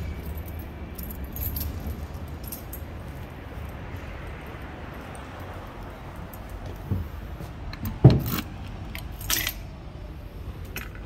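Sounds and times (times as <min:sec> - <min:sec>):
bright metallic clinks: 0:00.0 - 0:03.7
keys jangling: 0:00.0 - 0:06.6, 0:09.0 - 0:09.6.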